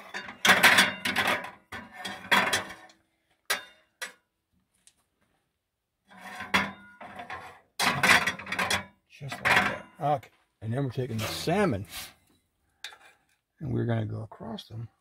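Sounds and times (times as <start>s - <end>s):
metal tongs clattering on plates: 0.0s - 2.9s, 6.4s - 10.0s.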